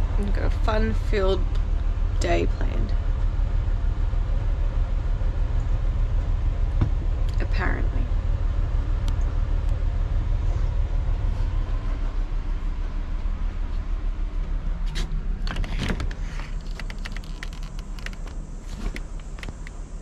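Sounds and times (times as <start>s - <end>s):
door latch click and rattle: 15.5s - 18.3s.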